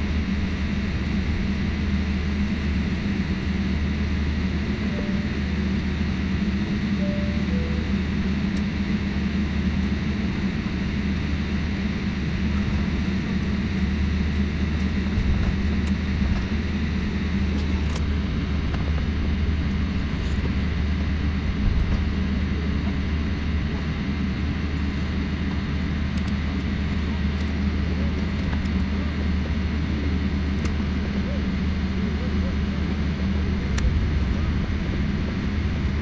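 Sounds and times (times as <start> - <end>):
jet engine hum: 0.0 - 36.0
faint high whine: 3.7 - 8.6.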